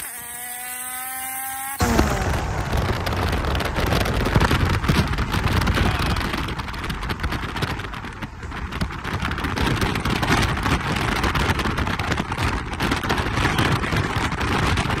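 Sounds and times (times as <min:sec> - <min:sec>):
car engine accelerating: 0:00.0 - 0:09.2
road noise: 0:00.0 - 0:15.0
wind noise: 0:01.8 - 0:15.0.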